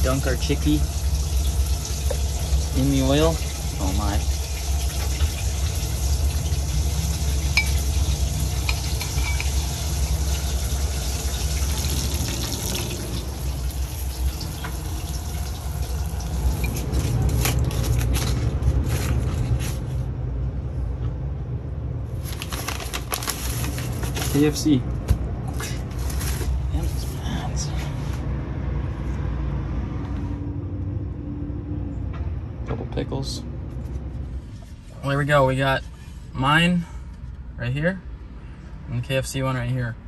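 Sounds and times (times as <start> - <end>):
chicken sizzling in hot oil: 0.0 - 17.2.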